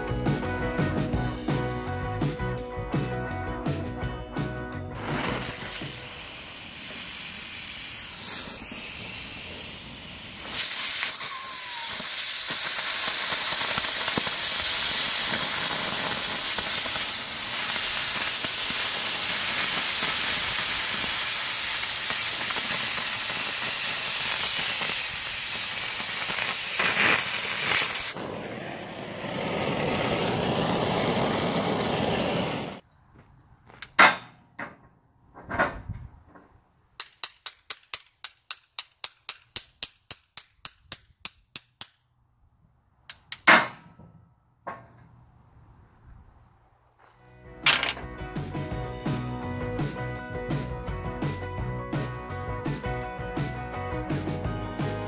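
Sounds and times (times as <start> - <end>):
cutting torch hissing: 5.0 - 32.8.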